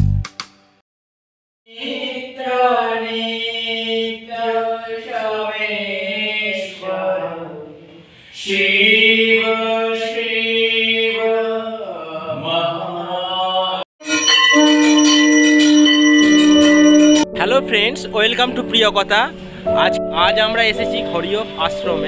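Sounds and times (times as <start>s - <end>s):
voices chanting a hymn: 1.7s - 13.8s.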